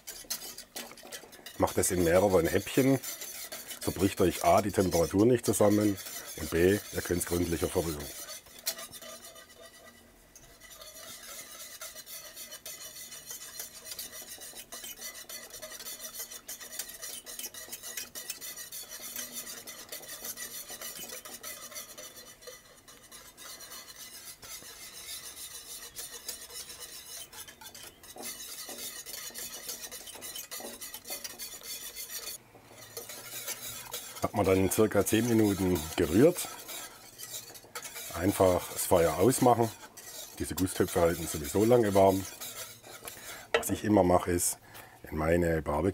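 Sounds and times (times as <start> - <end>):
whisk scraping in a pot: 0.0 - 45.9.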